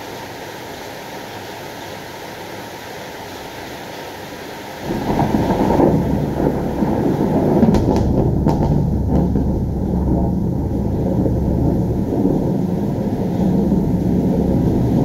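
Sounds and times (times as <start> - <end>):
thunder crackles: 4.8 - 15.0
thunder rumbling: 4.8 - 15.0.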